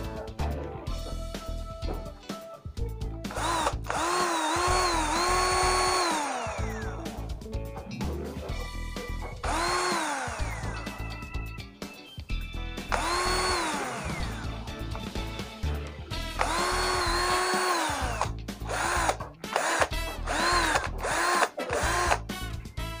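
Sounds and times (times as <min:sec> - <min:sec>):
background music: 0:00.0 - 0:23.0
cordless drill motor whining: 0:03.3 - 0:07.1, 0:09.4 - 0:11.2, 0:12.9 - 0:14.6, 0:16.4 - 0:22.3.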